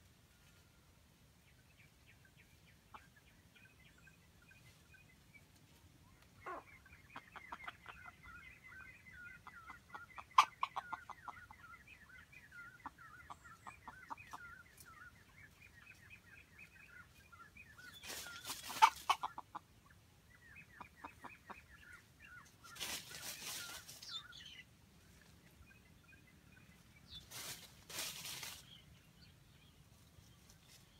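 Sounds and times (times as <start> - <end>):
junglefowl clucking: 6.3 - 15.2, 16.8 - 24.4.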